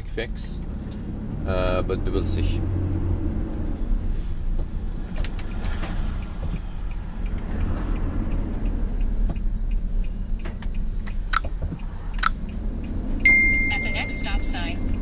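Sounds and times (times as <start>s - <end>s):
van engine and road rumble: 0.0s - 15.0s
sharp click: 10.5s - 12.4s.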